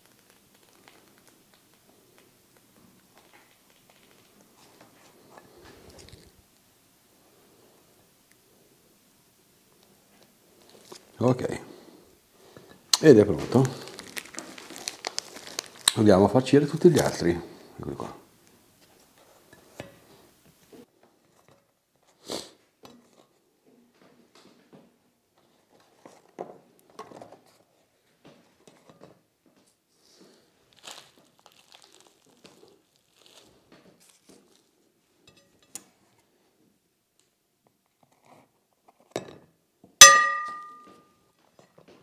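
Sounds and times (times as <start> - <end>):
tableware clinking: 40.0 - 41.0.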